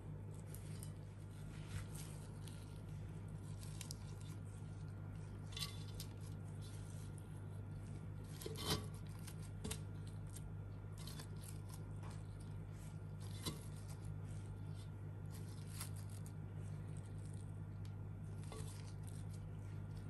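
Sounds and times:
plastic glove rustling: 0:00.0 - 0:20.0
steady low hum: 0:00.0 - 0:20.0.

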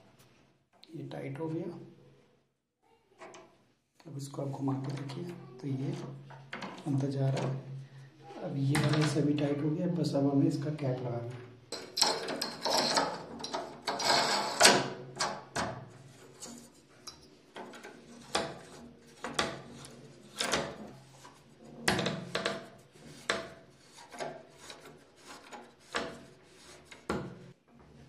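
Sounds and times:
metal parts clicking and scraping: 0:11.7 - 0:15.4.

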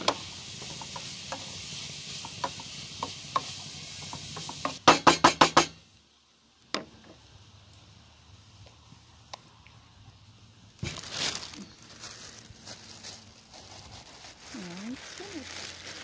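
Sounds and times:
food sizzling in a frying pan: 0:00.0 - 0:05.7.

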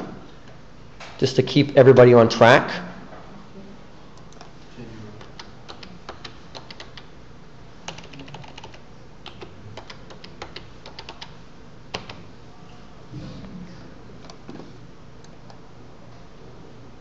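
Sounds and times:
keyboard keystroke clicks: 0:05.2 - 0:07.1.

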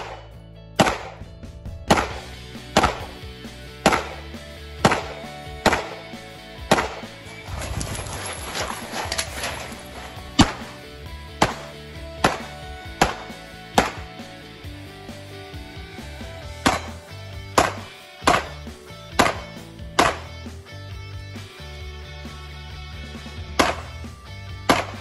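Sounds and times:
pistol shots: 0:00.0 - 0:01.3, 0:01.9 - 0:07.4, 0:08.6 - 0:10.8, 0:11.4 - 0:14.2, 0:16.6 - 0:20.3, 0:23.6 - 0:24.0, 0:24.7 - 0:25.0
background music: 0:00.0 - 0:25.0.

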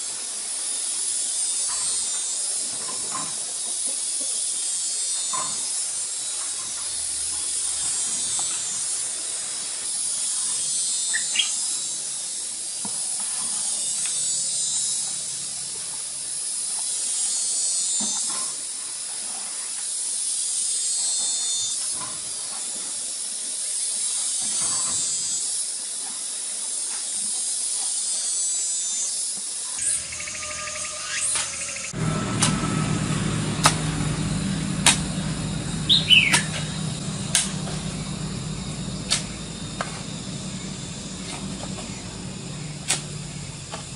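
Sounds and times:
insects buzzing: 0:00.0 - 0:43.9.

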